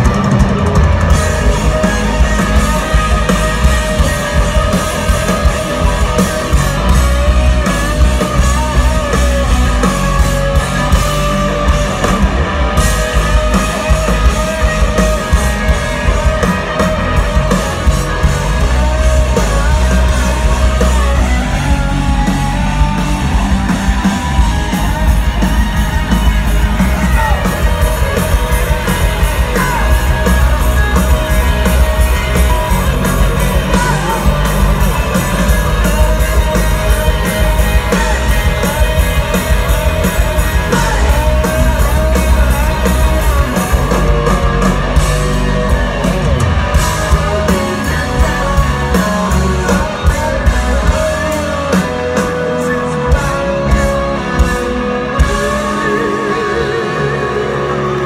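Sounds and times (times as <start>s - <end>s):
bass guitar: 0.0s - 58.0s
drum kit: 0.0s - 58.0s
electric guitars: 0.0s - 58.0s
person singing lead vocal: 12.8s - 58.0s.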